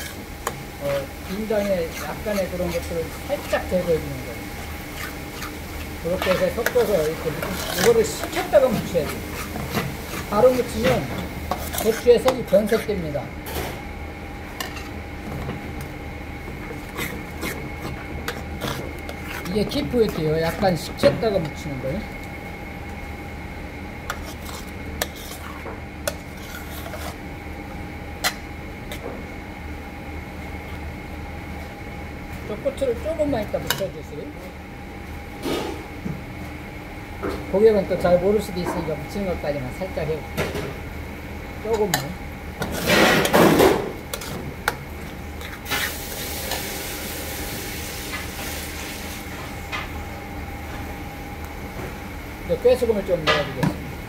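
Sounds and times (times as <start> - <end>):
spoon stirring paste in a pan: 1.2 - 12.9.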